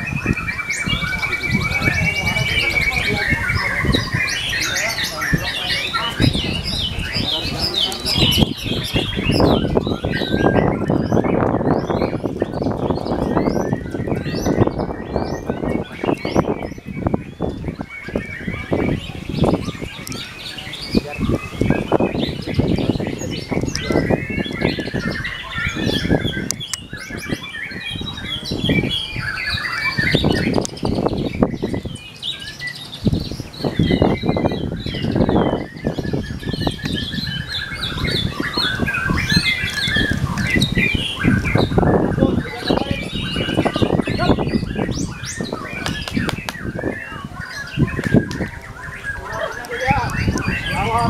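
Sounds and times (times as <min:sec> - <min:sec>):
bird singing chirps and whistles: 0:00.0 - 0:51.0
busy background noise: 0:00.0 - 0:51.0.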